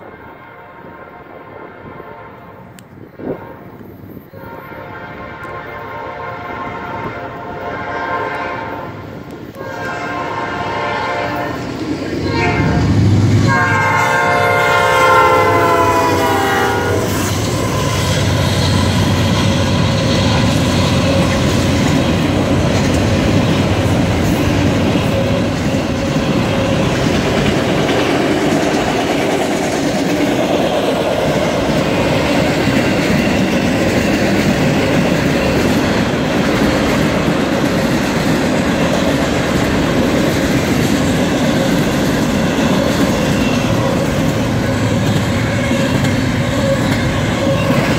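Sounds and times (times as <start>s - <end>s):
locomotive air horn: 0.0s - 18.6s, 42.8s - 47.9s
freight train cars rolling on rails: 0.0s - 47.9s.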